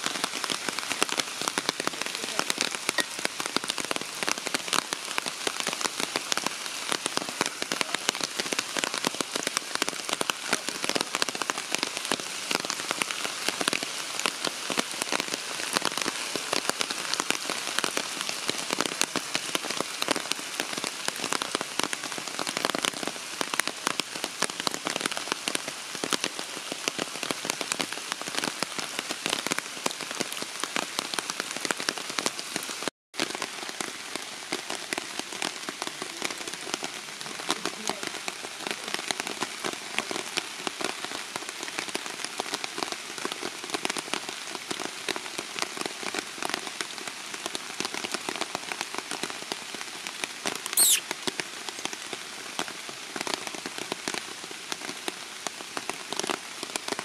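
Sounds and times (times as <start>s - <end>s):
raindrops striking: 0.0s - 14.9s
steady rain: 0.0s - 57.0s.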